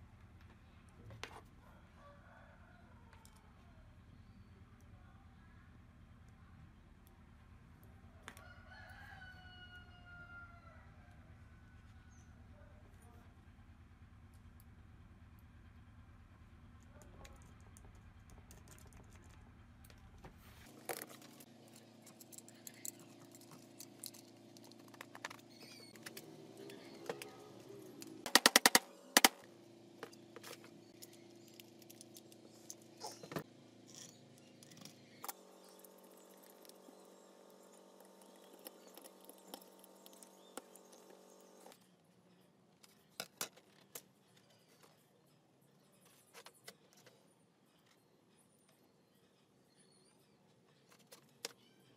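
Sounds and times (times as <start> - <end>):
clicks and knocks of tool parts: 28.0 - 29.4.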